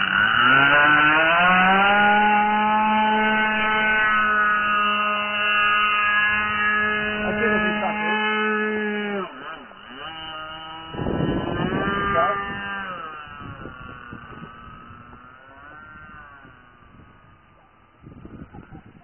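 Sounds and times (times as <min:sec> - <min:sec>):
aircraft engine droning: 0:00.0 - 0:19.0
wind gust on microphone: 0:10.1 - 0:19.0.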